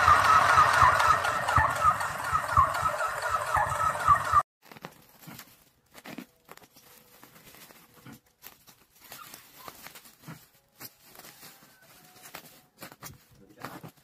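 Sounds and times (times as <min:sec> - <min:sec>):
plastic packaging crinkling: 0:04.6 - 0:14.0.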